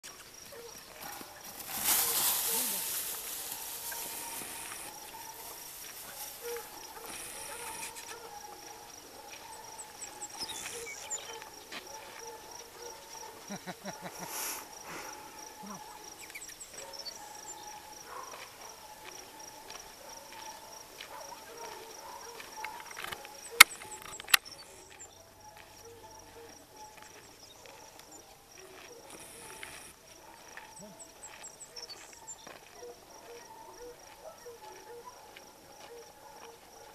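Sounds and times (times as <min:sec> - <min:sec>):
high insect trill: 0:00.0 - 0:19.4
sharp loud clicks: 0:22.9 - 0:24.5.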